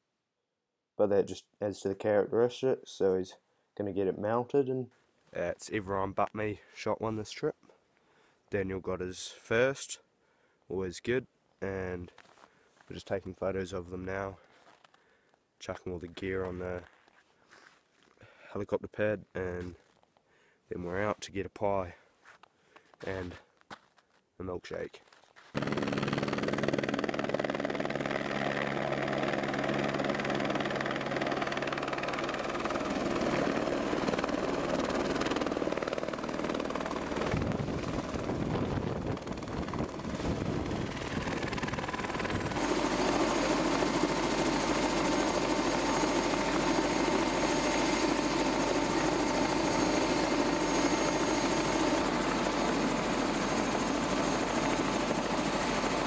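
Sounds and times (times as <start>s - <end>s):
helicopter rotor and turbine: 25.6s - 56.0s.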